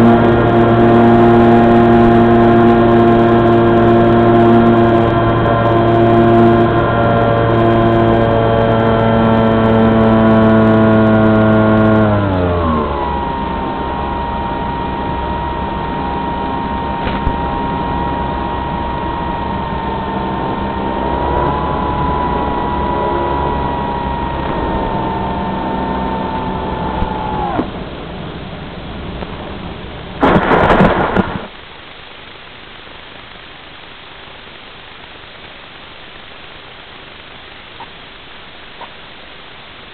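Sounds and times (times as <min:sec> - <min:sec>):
electric motor and propeller buzzing: 0:00.0 - 0:28.6
rush of air: 0:27.1 - 0:31.6.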